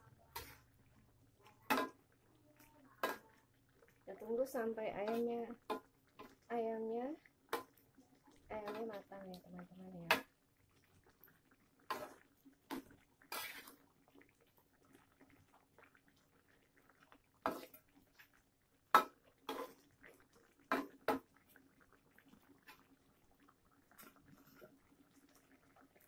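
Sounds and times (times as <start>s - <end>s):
metal spatula scraping a wok: 0.3s - 0.7s, 8.6s - 9.0s, 11.9s - 12.2s, 13.3s - 13.8s, 17.5s - 17.8s, 19.5s - 19.8s.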